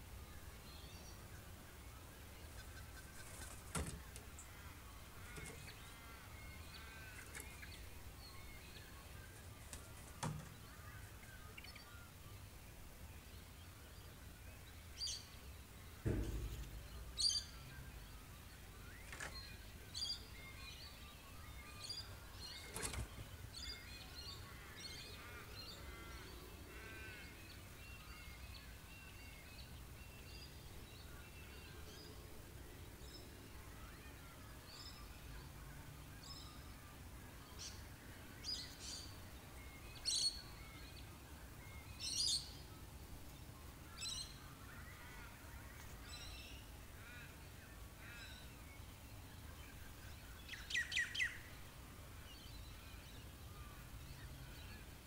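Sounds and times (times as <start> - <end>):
birds chirping: 0.0 - 55.0
soft knocks: 16.0 - 17.4.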